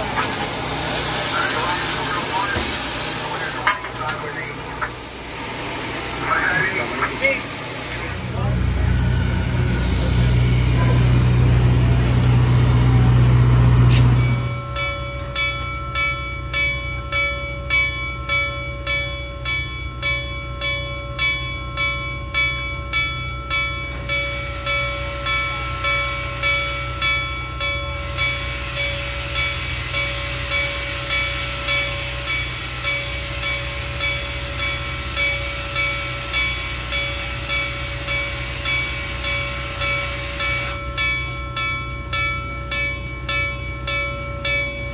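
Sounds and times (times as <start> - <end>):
steam hissing: 0.0 - 14.5, 24.3 - 27.1, 28.0 - 41.6
loud low locomotive rumble: 0.0 - 15.9
locomotive bell ringing: 0.0 - 44.9.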